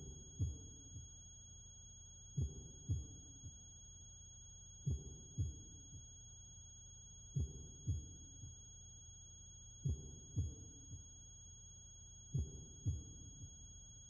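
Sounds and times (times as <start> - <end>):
heartbeat thumps: 0.0 - 1.1, 2.4 - 3.6, 4.8 - 6.1, 7.3 - 8.6, 9.8 - 11.1, 12.3 - 13.7.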